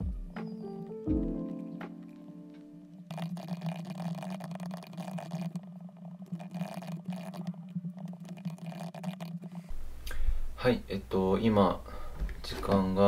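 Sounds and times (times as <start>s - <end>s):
steady low hum: 2.7s - 13.0s.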